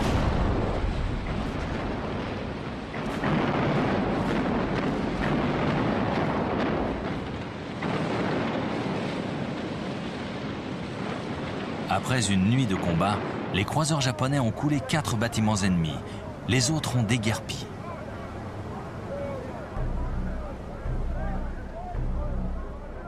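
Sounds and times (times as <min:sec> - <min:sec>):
heavy gunfire booms: 0:00.0 - 0:11.9
continuous low rumble: 0:00.0 - 0:12.0, 0:14.8 - 0:23.0.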